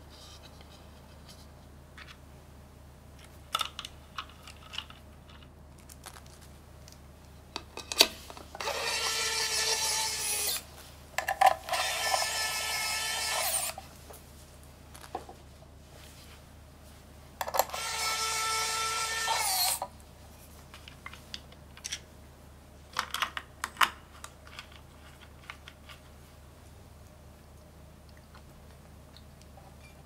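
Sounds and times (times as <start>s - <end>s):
electric screwdriver motor whine: 8.6s - 10.6s, 11.6s - 13.8s, 17.5s - 19.9s.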